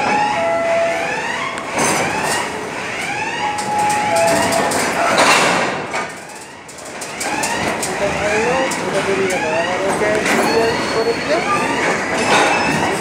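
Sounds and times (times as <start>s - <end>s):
whooping warning siren: 0.0s - 5.3s, 6.1s - 13.0s
wagon wheels squealing on rails: 6.3s - 13.0s.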